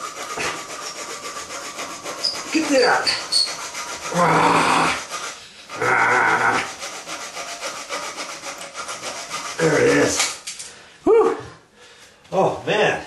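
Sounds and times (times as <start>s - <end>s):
man straining: 4.0s - 5.1s, 5.7s - 6.7s
saw blade rasping through bolt: 6.8s - 10.6s.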